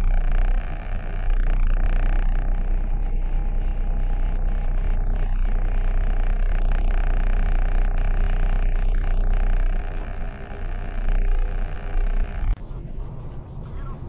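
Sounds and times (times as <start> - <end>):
car engine idling: 0.0 - 12.6.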